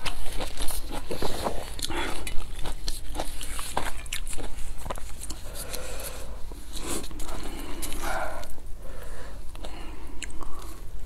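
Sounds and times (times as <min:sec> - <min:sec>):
wet mouth clicks and chewing: 0:00.0 - 0:05.8, 0:09.5 - 0:10.8.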